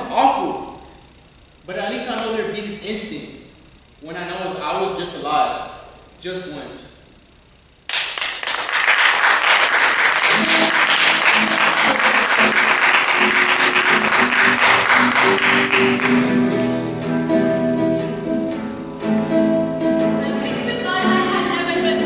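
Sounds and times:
audience applause: 0:07.9 - 0:16.8
music: 0:10.2 - 0:22.0.

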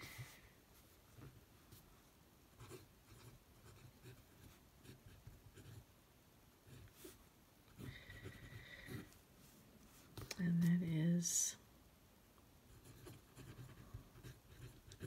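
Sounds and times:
pen nib scratching on paper: 0:06.7 - 0:09.2, 0:12.8 - 0:15.0.

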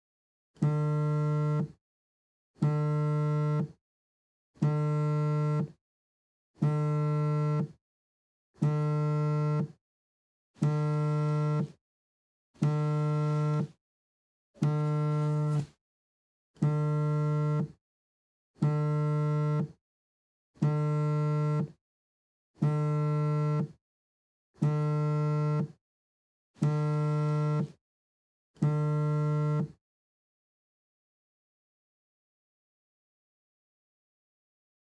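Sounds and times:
mobile phone vibrating: 0:00.6 - 0:01.8, 0:02.6 - 0:03.8, 0:04.6 - 0:05.8, 0:06.6 - 0:07.8, 0:08.6 - 0:09.8, 0:10.6 - 0:11.8, 0:12.6 - 0:13.8, 0:14.6 - 0:15.8, 0:16.6 - 0:17.8, 0:18.6 - 0:19.8, 0:20.6 - 0:21.8, 0:22.6 - 0:23.8, 0:24.6 - 0:25.8, 0:26.6 - 0:27.8, 0:28.6 - 0:29.8.

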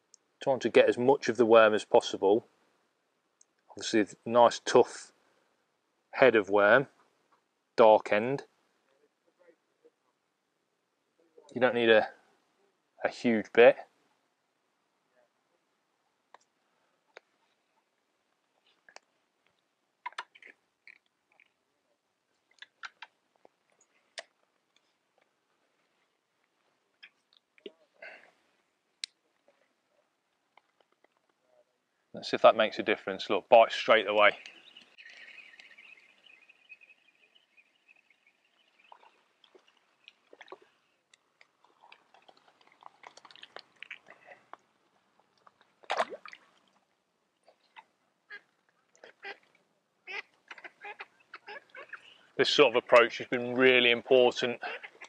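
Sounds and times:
small water splashes: 0:34.4 - 0:44.5, 0:45.2 - 0:47.8.

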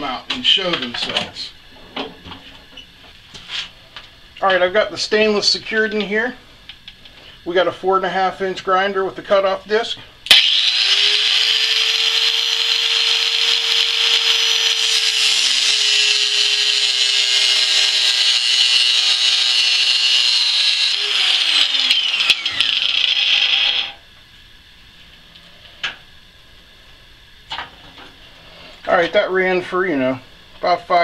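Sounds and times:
angle grinder grinding steel: 0:10.3 - 0:24.0
grinder motor whine: 0:10.3 - 0:24.2.

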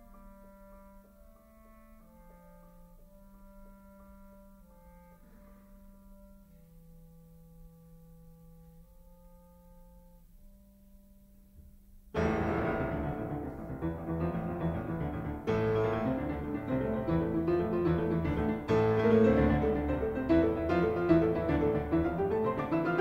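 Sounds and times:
classical piano music: 0:12.2 - 0:23.0.

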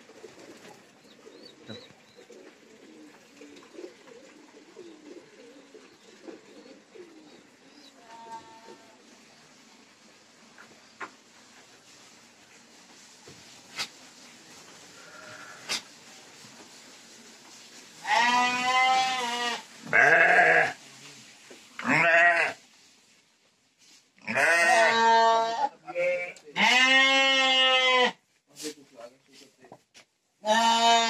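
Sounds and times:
sheep bleating: 0:18.0 - 0:20.8, 0:21.8 - 0:22.6, 0:24.2 - 0:28.2, 0:30.4 - 0:31.0.

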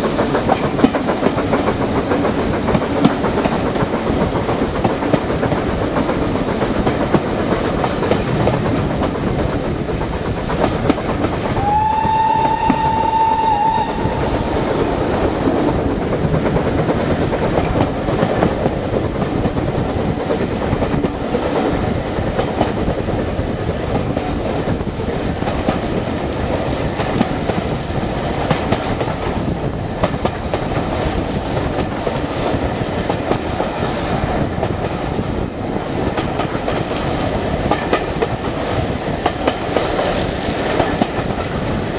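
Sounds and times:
train wheels running on rails: 0:00.0 - 0:41.9
steam locomotive whistle: 0:11.4 - 0:15.6.

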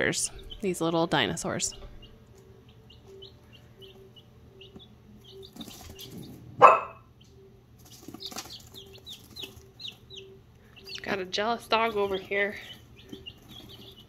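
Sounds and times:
chicks peeping: 0:00.0 - 0:14.0
dog barking: 0:06.6 - 0:07.1.

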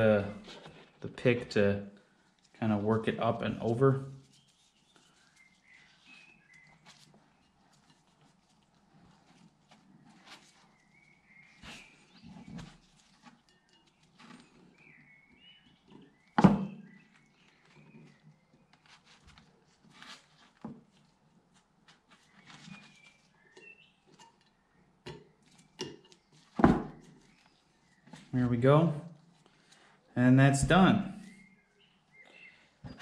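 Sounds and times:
sharp knocks: 0:16.4 - 0:16.8.

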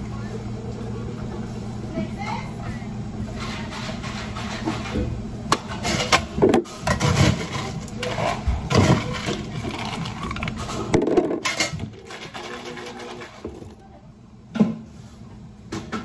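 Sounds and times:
scraping and rattling: 0:05.7 - 0:13.8.

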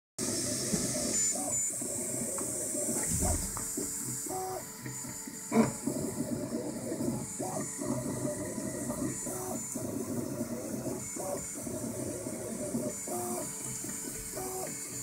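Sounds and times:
cooling fans hissing: 0:01.8 - 0:04.6
stepper motors whining: 0:02.8 - 0:04.6.

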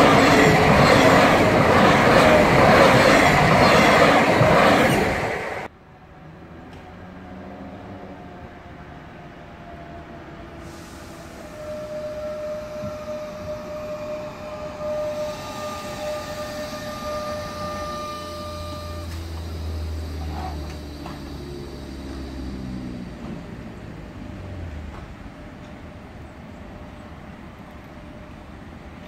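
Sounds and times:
electric train braking: 0:00.0 - 0:05.7, 0:10.5 - 0:25.8
high whine: 0:10.8 - 0:24.0.

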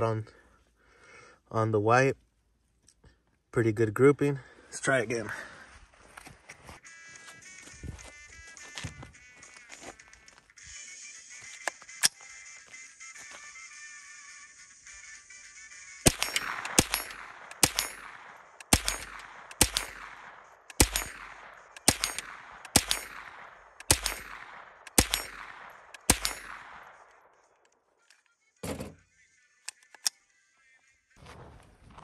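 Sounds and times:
rifle shots with echo: 0:16.0 - 0:27.6.

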